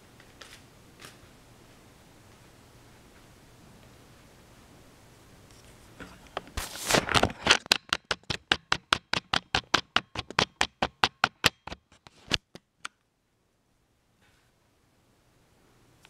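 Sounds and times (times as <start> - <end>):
rapid sharp taps: 7.5 - 12.6.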